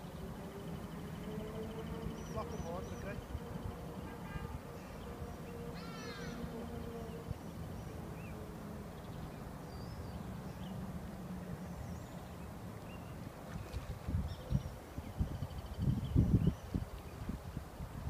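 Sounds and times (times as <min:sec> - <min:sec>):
descending bird call: 0:01.0 - 0:08.4
wind rumble on microphone: 0:13.0 - 0:18.0.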